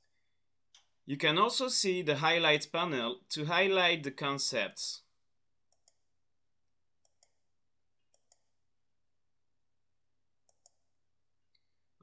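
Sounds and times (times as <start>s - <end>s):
faint mouse clicks: 0.0s - 1.0s, 5.7s - 6.1s, 7.0s - 7.4s, 8.1s - 8.5s, 10.4s - 10.9s.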